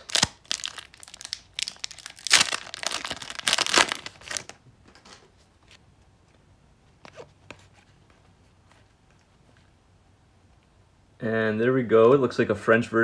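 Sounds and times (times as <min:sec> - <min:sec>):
wrapper tearing and crinkling: 0:00.0 - 0:04.6.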